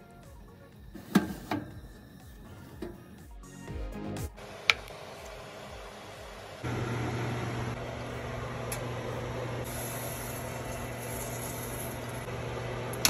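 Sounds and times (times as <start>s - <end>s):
oven fan humming: 4.4s - 13.0s.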